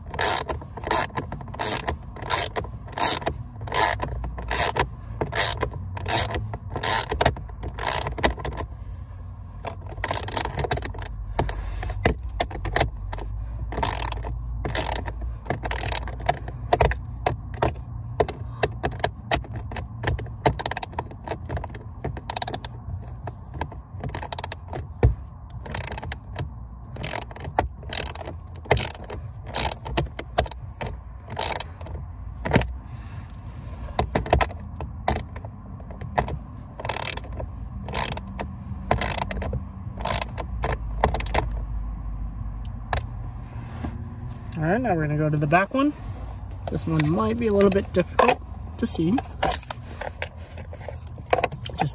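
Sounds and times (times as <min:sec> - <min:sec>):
ratchet wrench clicking: 0:00.0 - 0:08.6, 0:09.7 - 0:22.8, 0:23.6 - 0:24.8, 0:25.5 - 0:31.9, 0:36.8 - 0:41.6.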